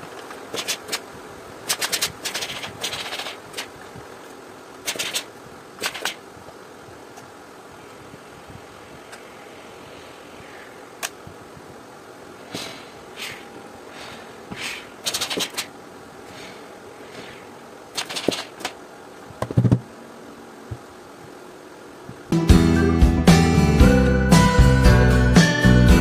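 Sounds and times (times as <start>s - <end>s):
steam iron hissing puffs: 9.3s - 11.0s, 12.4s - 15.5s, 16.2s - 17.6s.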